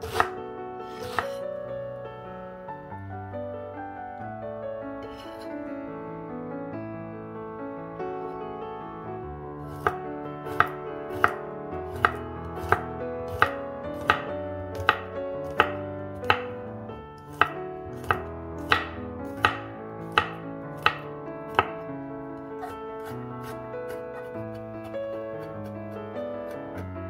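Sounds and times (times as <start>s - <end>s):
soft piano music: 0.0s - 27.0s
knife knocking on wooden board: 10.5s - 16.5s, 17.4s - 21.8s.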